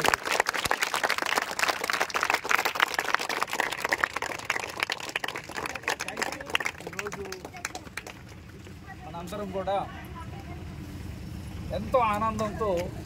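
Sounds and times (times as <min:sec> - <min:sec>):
crowd applauding: 0:00.0 - 0:08.9.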